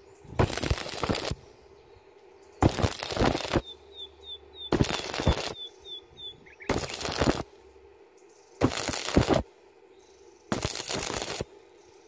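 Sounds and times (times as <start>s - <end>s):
welding arc crackling: 0.4s - 1.4s, 2.6s - 3.7s, 4.7s - 5.7s, 6.7s - 7.5s, 8.6s - 9.5s, 10.5s - 11.5s.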